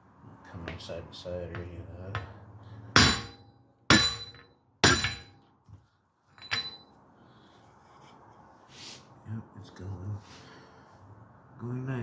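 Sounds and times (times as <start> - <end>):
hammer striking metal: 2.1 - 5.8.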